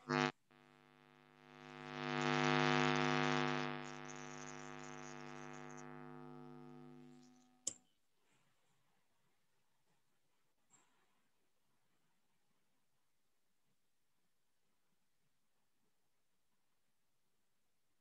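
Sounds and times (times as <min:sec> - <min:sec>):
buzzy electrical hum: 0:00.0 - 0:07.6.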